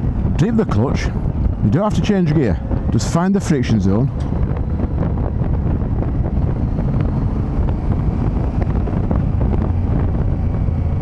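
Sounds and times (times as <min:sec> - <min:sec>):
wind rush on microphone: 0:00.0 - 0:11.0
motorcycle engine running: 0:04.1 - 0:11.0.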